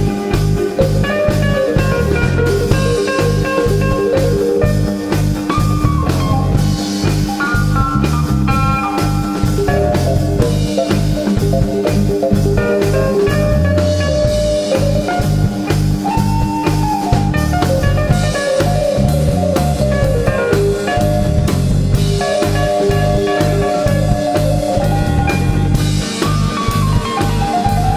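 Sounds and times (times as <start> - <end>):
bass guitar: 0.0 - 27.9
drum kit steady beat: 0.0 - 27.9
electric guitar: 0.0 - 27.9.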